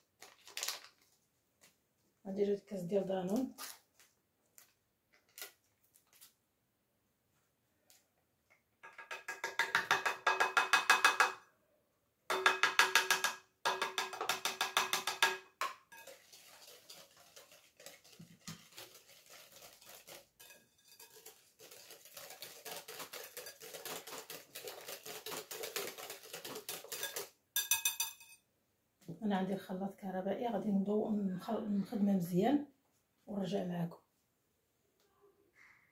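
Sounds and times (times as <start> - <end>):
whisk clinking against glass bowl: 15.9 - 17.6, 19.8 - 28.4
whisk beating batter: 16.0 - 27.3.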